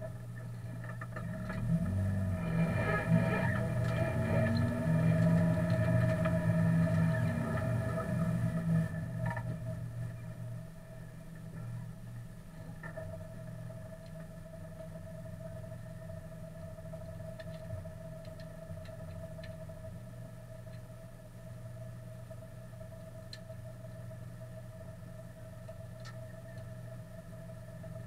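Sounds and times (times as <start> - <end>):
car engine idling: 0.6 - 12.6
faint clicks: 16.6 - 19.7, 23.3 - 23.5, 25.6 - 26.7.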